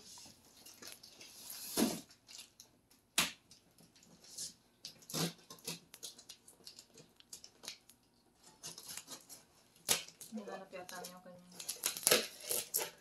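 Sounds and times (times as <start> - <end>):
knife clicking on plastic-wrapped box: 11.6 - 13.0.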